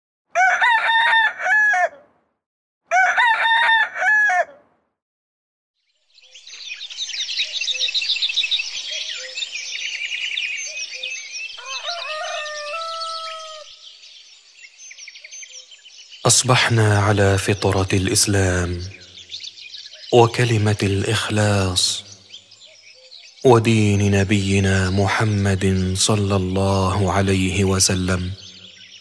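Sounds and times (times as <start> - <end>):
rooster crowing: 0.3 - 2.1, 2.9 - 4.7, 11.6 - 13.8
songbirds chirping: 5.8 - 29.0.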